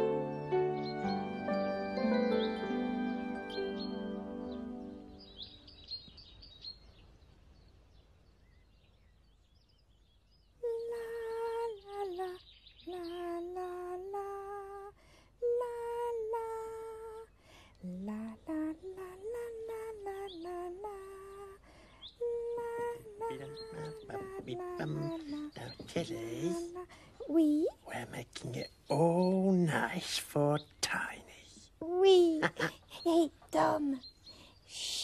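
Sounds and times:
high voice humming: 22.2s - 29.6s.

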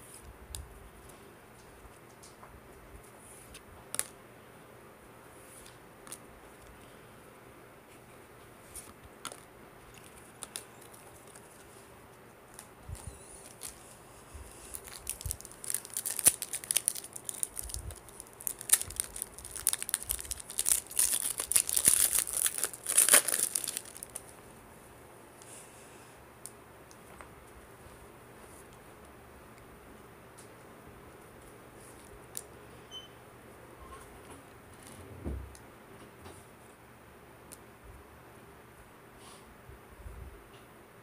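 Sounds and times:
foil wrapper crinkling and tearing: 8.8s - 11.7s, 12.5s - 13.9s, 14.5s - 24.3s.

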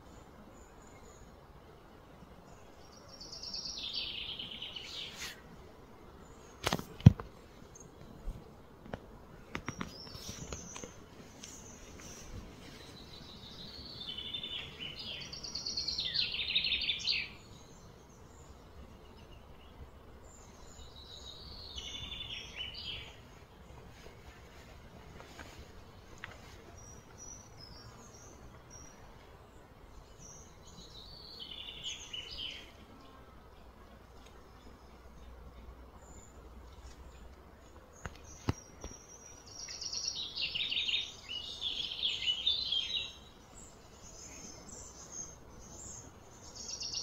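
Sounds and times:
quiet outdoor ambience: 0.0s - 47.0s
bird song with high trills: 12.9s - 23.2s, 29.6s - 33.2s, 37.9s - 47.0s.

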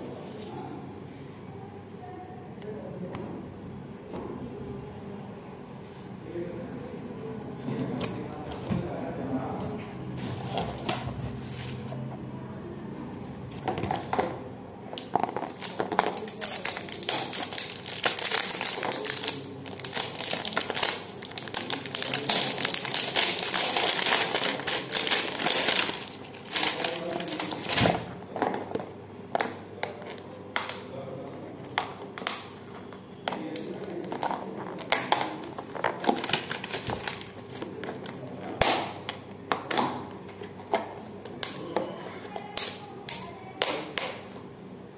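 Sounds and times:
plastic wrap and paper crinkling: 15.0s - 28.1s, 33.7s - 38.6s.

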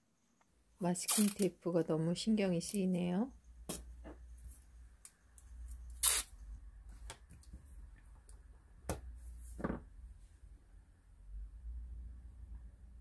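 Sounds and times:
masking tape rustle: 1.0s - 1.5s, 5.6s - 6.3s.

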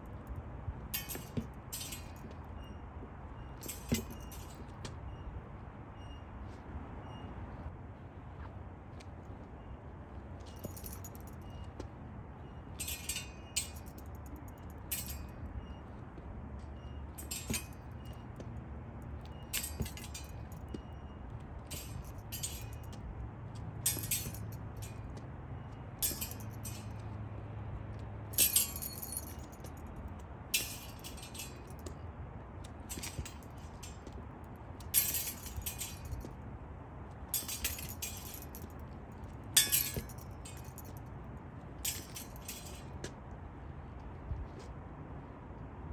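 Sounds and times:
steel swords clinking: 1.0s - 2.7s, 3.6s - 4.7s, 12.7s - 15.7s, 17.1s - 18.3s, 19.2s - 23.0s, 23.8s - 25.2s, 26.0s - 27.1s, 28.3s - 29.8s, 30.5s - 31.9s, 32.8s - 34.2s, 34.8s - 36.3s, 37.3s - 38.7s, 39.5s - 41.0s, 41.8s - 42.9s.

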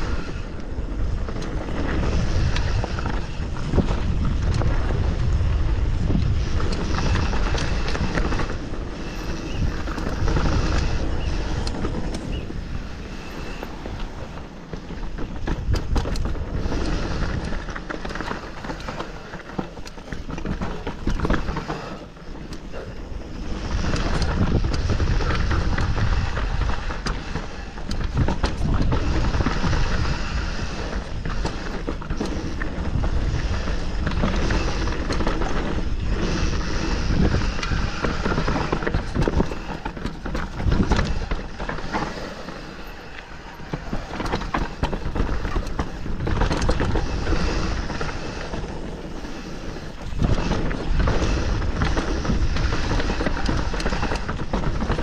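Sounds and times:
bike rattling over bumps: 0.0s - 55.0s
bike tyres rolling over gravel: 0.0s - 55.0s
wind on microphone: 0.0s - 55.0s.

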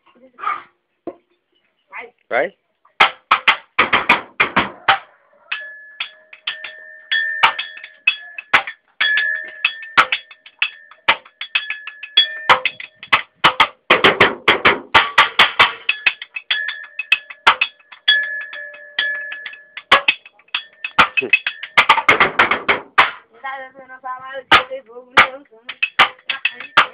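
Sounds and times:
drumming on cans: 3.0s - 23.3s, 24.4s - 26.9s
steady ringing tone: 5.4s - 13.4s, 15.8s - 21.9s.

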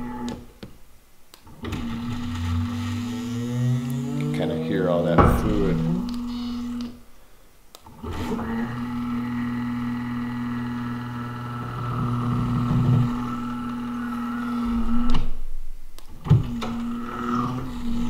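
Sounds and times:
electric hydraulic pump running: 1.6s - 7.0s, 8.0s - 15.3s, 16.4s - 18.0s
clunks: 5.1s - 7.0s.

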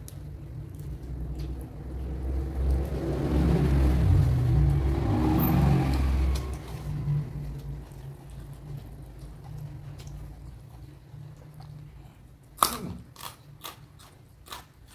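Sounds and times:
vehicle engine rumble passing: 0.1s - 12.1s.

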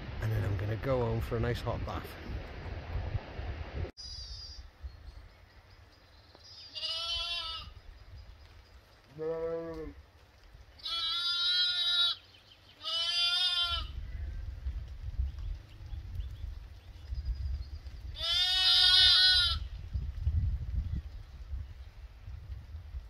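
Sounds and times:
wind rumbling on microphone: 0.0s - 6.3s, 7.1s - 11.2s, 13.2s - 23.0s
sheep bleating: 6.8s - 7.7s, 10.8s - 12.2s, 12.8s - 14.0s, 18.2s - 19.6s.

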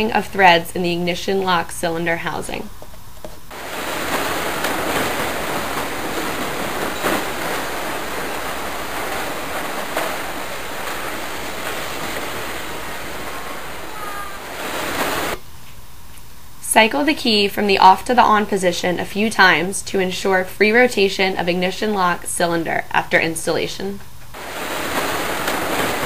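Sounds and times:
steady rushing noise: 3.5s - 15.4s, 24.4s - 26.0s.

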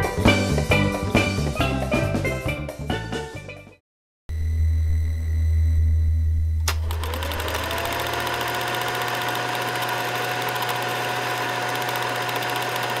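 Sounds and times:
projector click: 6.6s - 8.0s
film projector whirring: 6.6s - 13.0s.

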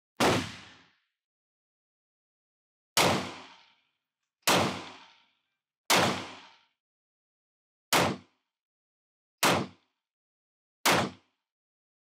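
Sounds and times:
pistol shots: 0.2s - 0.8s, 3.0s - 3.6s, 4.5s - 5.1s, 5.9s - 6.6s, 7.9s - 8.3s, 9.4s - 9.8s, 10.8s - 11.3s.

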